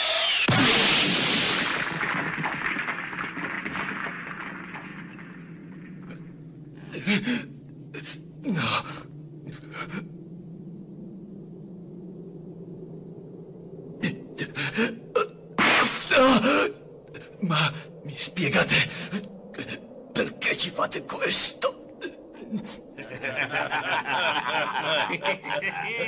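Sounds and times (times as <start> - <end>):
low steady drone: 5.3 - 26.0
man gasping and grunting: 6.8 - 10.1, 14.0 - 15.3.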